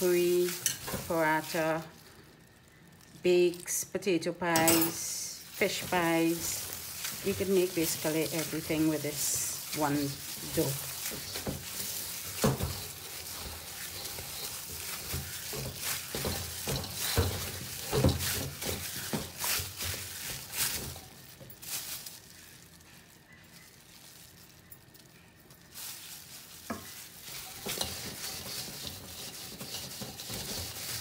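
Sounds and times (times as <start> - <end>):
dough squelching in a metal bowl: 0.0 - 31.0
rubbing and scraping: 5.4 - 22.4, 25.8 - 31.0.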